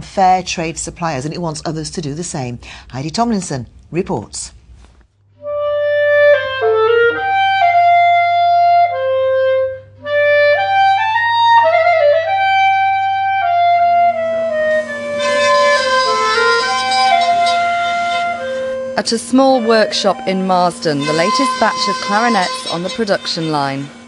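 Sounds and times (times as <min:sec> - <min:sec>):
clarinet solo melody: 0:05.4 - 0:24.0
machine hum and hiss: 0:14.0 - 0:24.0.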